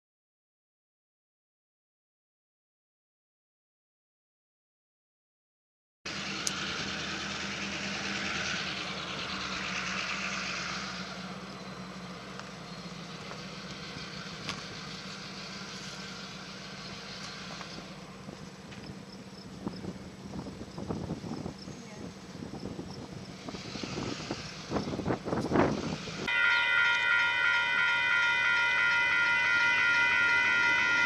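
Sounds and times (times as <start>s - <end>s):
engine humming: 6.1s - 31.0s
rushing noise: 22.7s - 31.0s.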